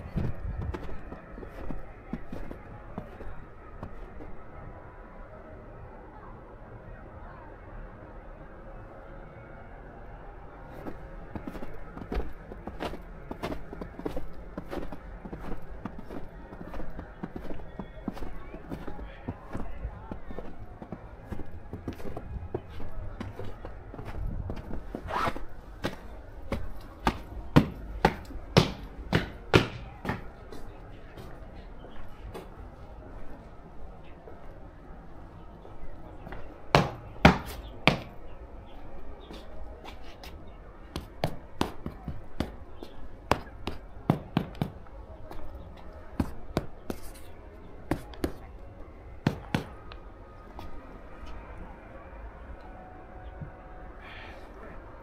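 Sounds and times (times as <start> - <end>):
footsteps crunching in snow: 0.0 - 4.4, 10.7 - 33.5
faint background voices: 0.0 - 55.0.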